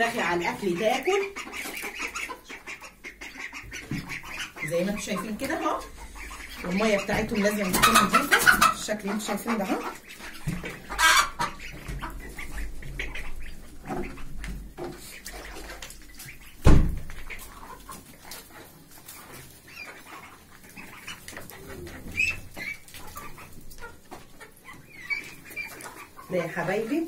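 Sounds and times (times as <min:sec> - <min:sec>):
hens clucking: 0:00.0 - 0:27.0
hens pecking at food: 0:00.0 - 0:27.0
small knocks and rustles: 0:03.6 - 0:04.4, 0:10.1 - 0:11.0, 0:11.6 - 0:26.1.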